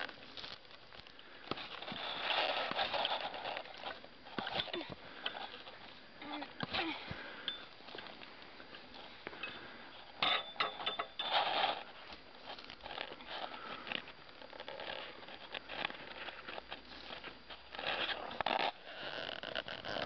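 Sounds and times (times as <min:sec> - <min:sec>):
sod scraping and tearing: 0:01.5 - 0:04.7, 0:11.3 - 0:20.0.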